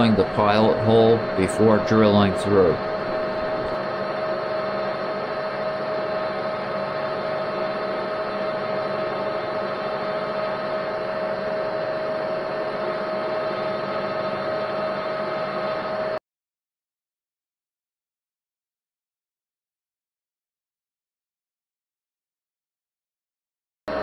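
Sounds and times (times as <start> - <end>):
metal lathe whining: 0.0 - 16.2.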